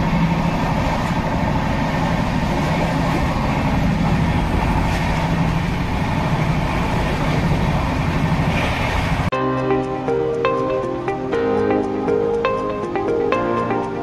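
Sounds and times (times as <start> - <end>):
train rumbling: 0.0 - 14.0.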